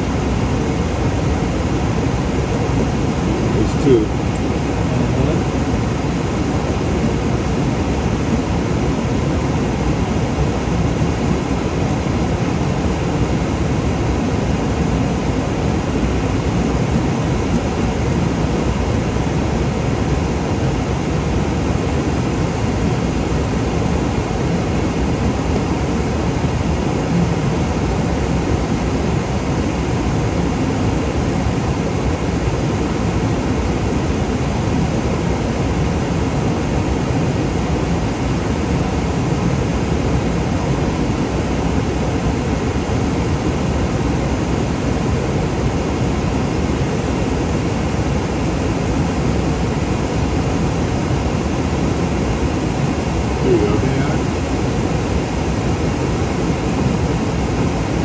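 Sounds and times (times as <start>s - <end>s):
aircraft cockpit rush: 53.3s - 54.5s.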